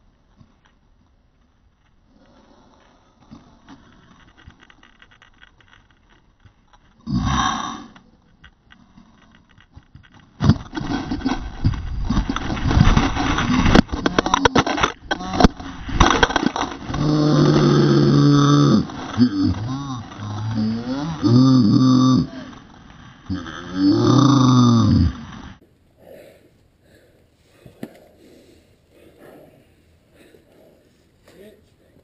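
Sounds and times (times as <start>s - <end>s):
sharp snaps and knocks: 7.9s - 20.6s
hand scraping against rock: 25.6s - 31.6s.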